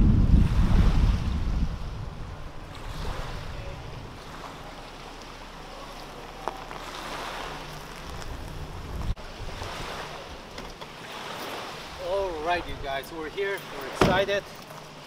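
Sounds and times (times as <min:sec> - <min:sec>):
wind on microphone: 0:00.0 - 0:05.0, 0:06.6 - 0:12.9
engine running low: 0:00.0 - 0:11.9
vehicle driving over gravel: 0:02.5 - 0:09.2.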